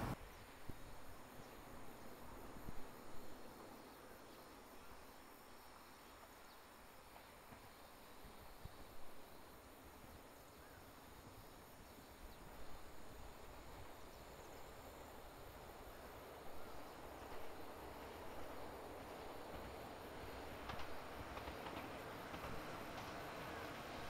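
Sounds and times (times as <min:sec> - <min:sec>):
approaching train rumble: 0:00.0 - 0:00.2, 0:12.7 - 0:24.0
insects droning: 0:00.0 - 0:24.0.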